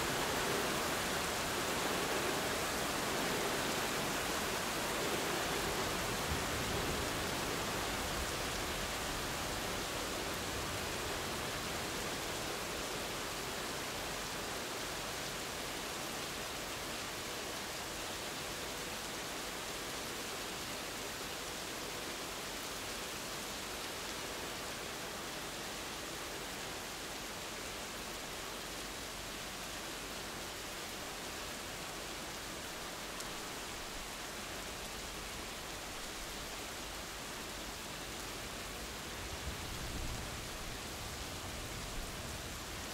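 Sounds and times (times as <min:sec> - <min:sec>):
steady rain falling: 0:00.0 - 0:42.9.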